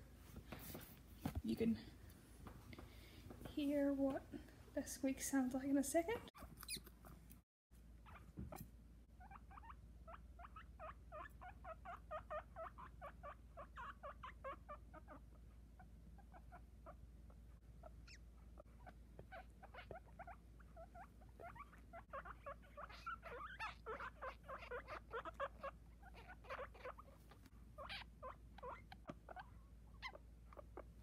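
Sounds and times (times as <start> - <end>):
guinea pig pup squeaking: 6.2 - 7.2, 8.0 - 31.0.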